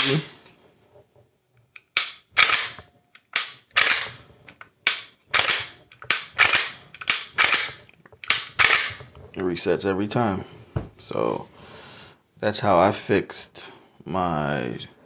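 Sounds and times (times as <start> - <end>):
pistol slide and trigger clicks: 1.7 - 9.0.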